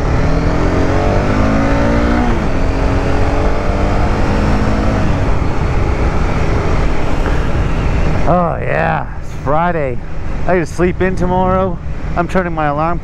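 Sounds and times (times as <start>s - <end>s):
motorcycle engine accelerating: 0.0s - 8.6s.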